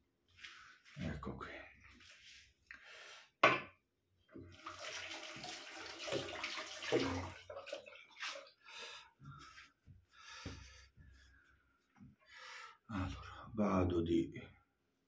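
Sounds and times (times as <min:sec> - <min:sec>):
tap water running into sink: 0:04.4 - 0:08.4.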